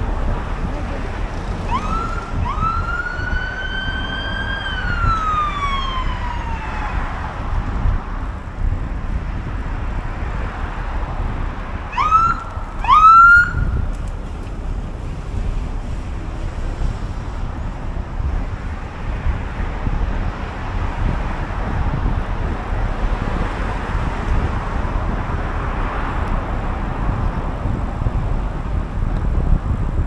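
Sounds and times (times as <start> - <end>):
wind rumble on microphone: 0.0 - 30.0
emergency vehicle siren wailing: 1.6 - 7.6, 11.9 - 13.9.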